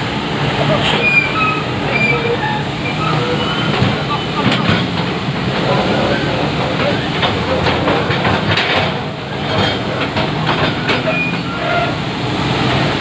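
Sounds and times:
excavator diesel engine running: 0.0s - 13.0s
metallic clanks and knocks: 3.1s - 11.8s.

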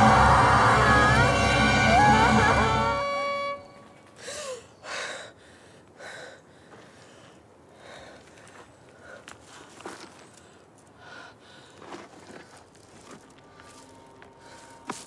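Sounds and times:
held music tones: 0.0s - 4.1s
faint breathing: 4.2s - 12.0s.

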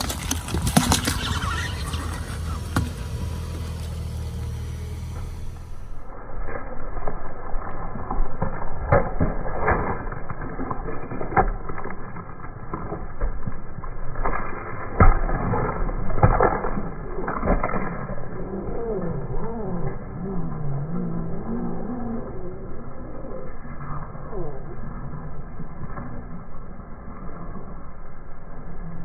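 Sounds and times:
watermelons crunching and cracking: 0.0s - 4.4s, 5.3s - 19.1s.

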